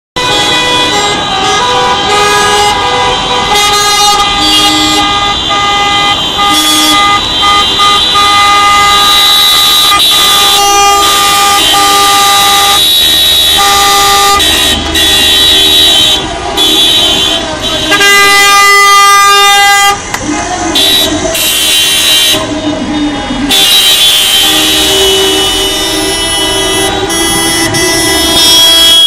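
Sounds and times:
car horns honking: 0.2s - 29.0s.

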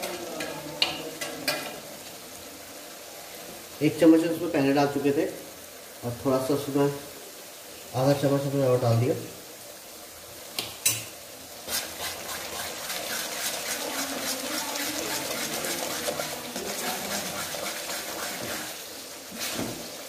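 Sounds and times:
wet sloppy gravy sounds: 10.4s - 20.0s
metal spatula scraping a pan: 11.6s - 19.8s.

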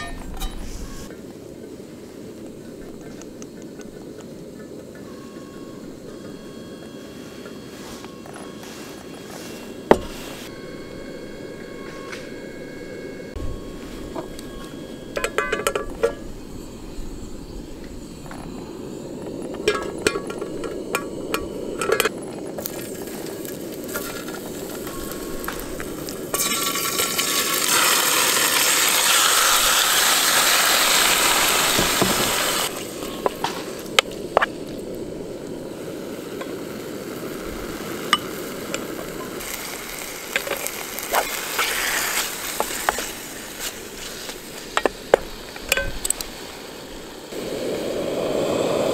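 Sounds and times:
chicken sizzling in hot oil: 22.6s - 33.9s, 35.7s - 45.5s.

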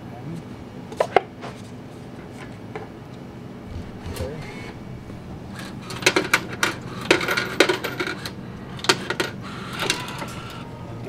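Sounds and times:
vending machine low hum: 0.0s - 11.0s
vending machine metallic clicks: 3.8s - 10.7s.

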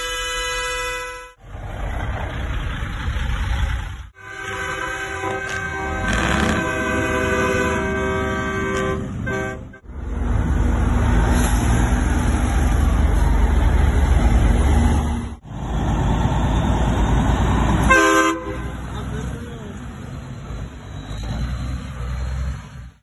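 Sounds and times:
truck air horn chord: 0.0s - 1.4s, 4.2s - 9.8s, 17.9s - 18.8s
diesel truck engine passing: 1.4s - 23.0s.

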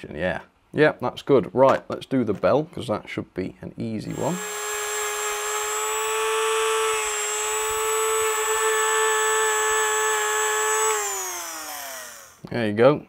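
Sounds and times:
rotary tool polishing whine: 4.1s - 12.4s.

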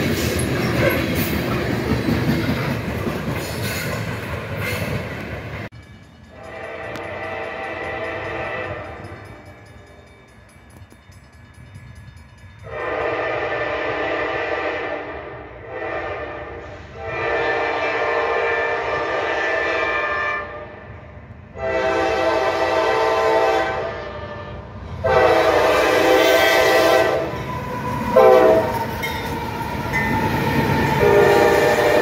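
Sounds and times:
locomotive engines and wheels rumbling: 0.0s - 14.6s, 20.6s - 32.0s
locomotive air horn blasts: 6.4s - 9.1s, 12.6s - 20.9s, 21.5s - 27.4s, 28.1s - 28.8s, 30.9s - 32.0s.

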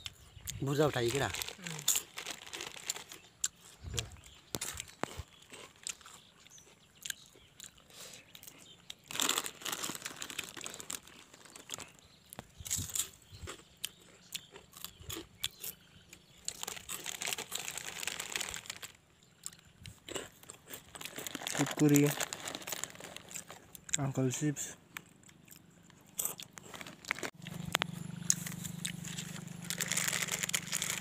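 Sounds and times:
crunchy chewing: 0.0s - 31.0s
snack packet crinkling: 0.9s - 3.3s, 4.5s - 6.2s, 8.6s - 13.6s, 16.4s - 19.0s, 20.1s - 23.9s, 26.2s - 31.0s.

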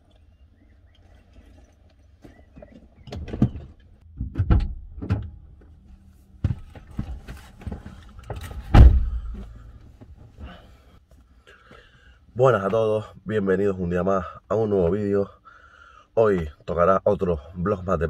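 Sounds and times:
knocks and rustling climbing in: 0.1s - 10.9s
car door opening: 8.2s - 9.5s
car door thud shut: 8.7s - 9.4s.

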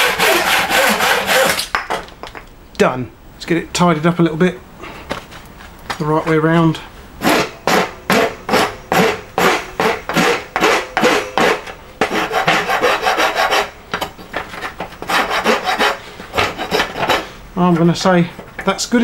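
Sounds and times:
hand file rasping on wood: 0.0s - 1.6s, 7.2s - 13.7s, 15.0s - 17.3s.

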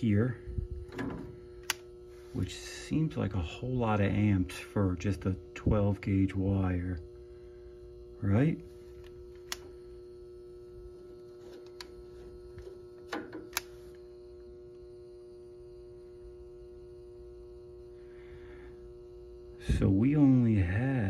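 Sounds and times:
water heater electrical hum: 0.0s - 21.0s
light handling clicks: 1.6s - 1.9s, 13.3s - 13.8s.

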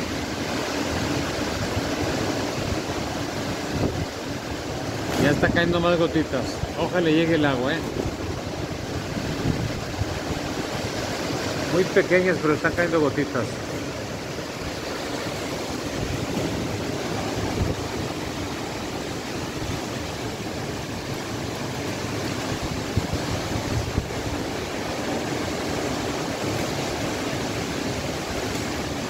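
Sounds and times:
wind buffeting microphone: 0.0s - 11.8s, 13.6s - 29.0s
wind rushing through trees: 0.0s - 29.0s.

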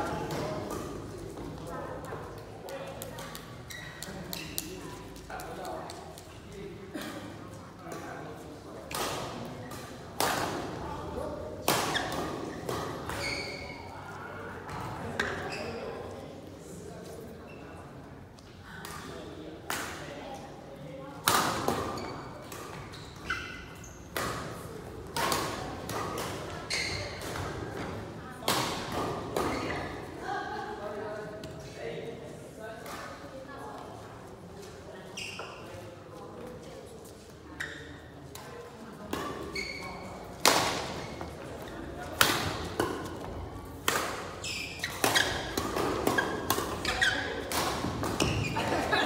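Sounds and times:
shoes squeaking on court floor: 0.2s - 5.2s, 11.8s - 14.2s, 14.8s - 16.2s, 17.4s - 17.9s, 21.8s - 24.5s, 26.4s - 27.9s, 29.4s - 30.1s, 35.0s - 36.0s, 37.1s - 38.2s, 39.2s - 49.0s
shoe squeaks: 3.6s - 4.8s, 13.1s - 14.0s, 15.2s - 15.8s, 21.9s - 24.1s, 26.6s - 27.2s, 35.1s - 35.8s, 37.6s - 38.1s, 39.5s - 40.2s, 44.4s - 47.5s, 48.2s - 48.7s
rackets hitting shuttlecock: 40.3s - 41.4s, 42.0s - 48.9s.

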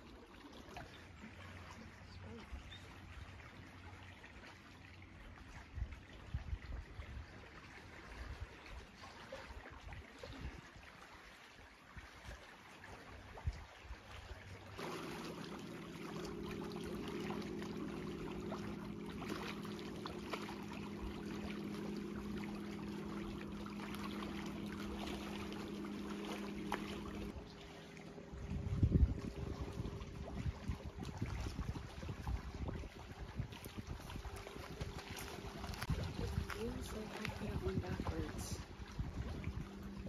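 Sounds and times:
low motor hum: 0.0s - 10.7s, 13.2s - 40.0s
trickling water: 0.0s - 40.0s
wind buffeting microphone: 28.2s - 40.0s.

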